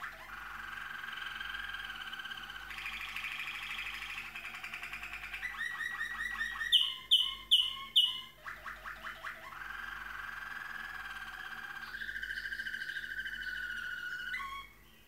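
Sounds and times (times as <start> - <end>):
canary singing rolling trills: 0.0 - 15.0.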